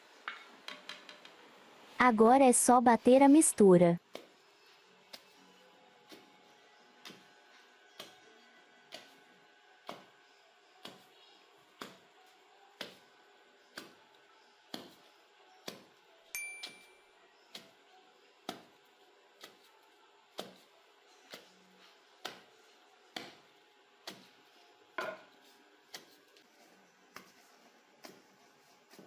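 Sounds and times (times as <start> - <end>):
wooden pestle thudding in mortar: 25.0 - 25.4.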